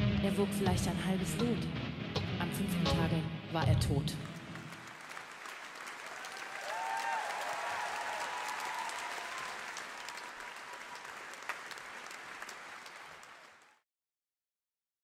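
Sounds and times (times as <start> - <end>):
audience applauding: 4.2 - 13.8
audience cheering: 4.4 - 13.8.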